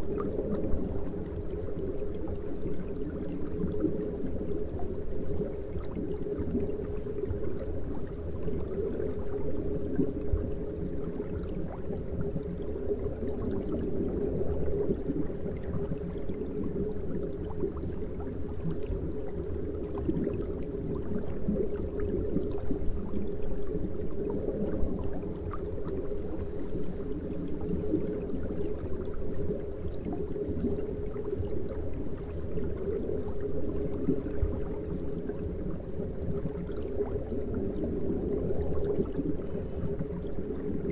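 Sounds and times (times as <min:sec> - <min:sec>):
water bubbling and gurgling: 0:00.0 - 0:40.9.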